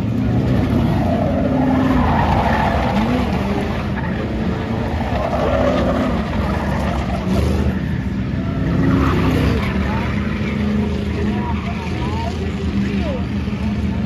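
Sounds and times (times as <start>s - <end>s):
race car engines passing: 0.0s - 14.0s.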